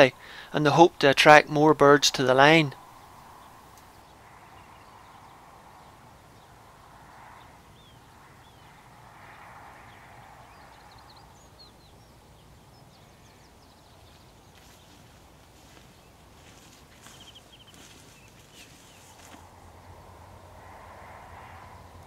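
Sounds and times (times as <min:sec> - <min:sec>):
faint rushing noise: 0:00.0 - 0:22.0
small birds chirping: 0:02.3 - 0:20.0.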